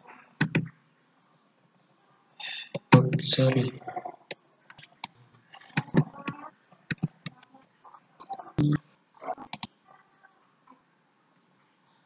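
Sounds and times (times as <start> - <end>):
sharp clicks and short knocks: 0.4 - 0.7, 5.8 - 7.4.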